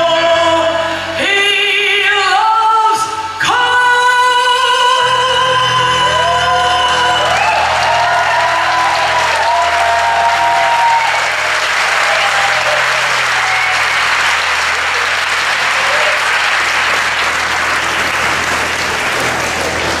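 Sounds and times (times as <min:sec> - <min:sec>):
audience applauding: 0:06.1 - 0:20.0.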